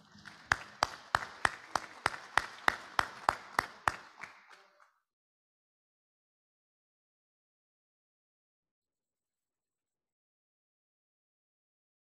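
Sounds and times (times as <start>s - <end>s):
person clapping close: 0.0s - 4.9s
soft clapping from others: 0.0s - 5.0s.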